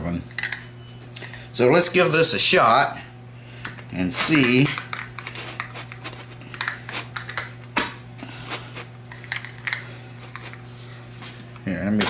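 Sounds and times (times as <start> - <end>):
low steady hum: 0.0 - 12.0
pizza cutter crunching crust: 5.1 - 9.0.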